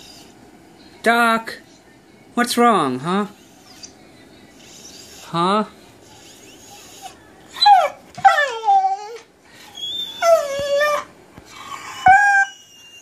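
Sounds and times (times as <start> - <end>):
dog whining: 0.0 - 0.4, 6.0 - 13.0.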